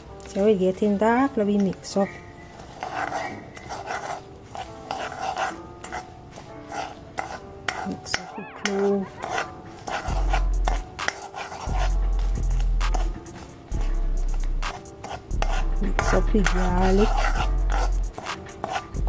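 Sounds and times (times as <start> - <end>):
metal spoon scraping pot: 1.1 - 19.0
high gliding squeak: 2.0 - 3.9.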